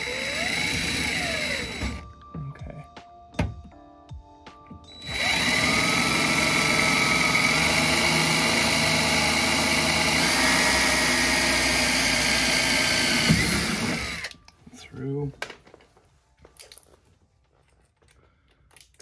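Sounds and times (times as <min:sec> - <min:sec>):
cordless drill running: 0:00.0 - 0:02.0, 0:04.9 - 0:14.3.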